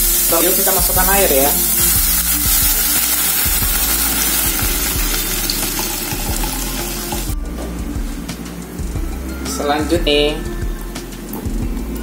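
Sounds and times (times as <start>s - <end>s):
pot sizzling hiss: 0.0s - 7.4s.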